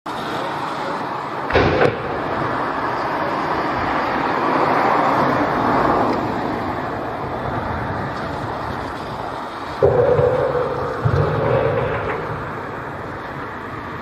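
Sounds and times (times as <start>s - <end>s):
steady rushing noise: 0.1s - 14.0s
explosive double bang: 1.5s - 2.4s, 9.8s - 13.1s.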